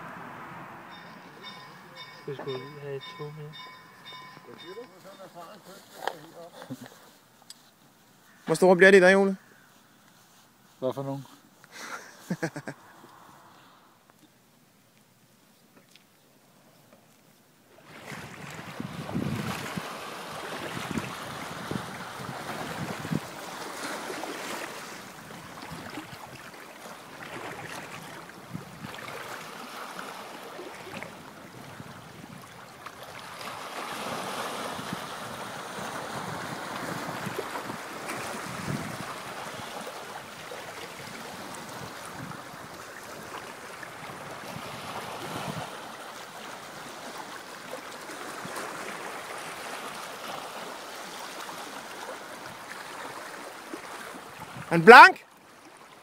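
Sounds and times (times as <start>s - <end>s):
small waves lapping against boulders: 17.0s - 56.0s
wind gusting on microphone: 17.9s - 23.4s, 27.8s - 29.2s, 33.4s - 39.8s, 40.9s - 43.3s, 43.9s - 45.8s.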